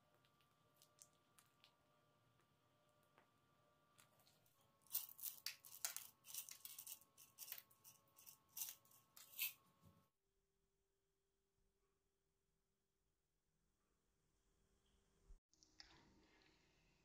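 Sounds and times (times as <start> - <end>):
sugar sprinkles being shaken: 4.9 - 9.5.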